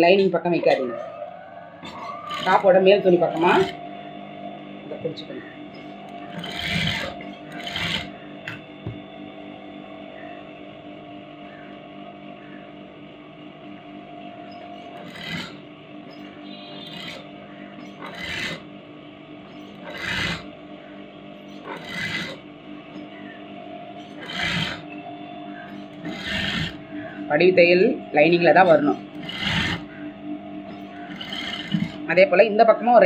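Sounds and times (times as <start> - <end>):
electric sewing machine running: 1.8 - 3.8, 5.7 - 9.0, 14.5 - 18.7, 19.4 - 20.6, 21.3 - 23.1, 23.9 - 25.0, 25.6 - 30.0, 30.7 - 32.2.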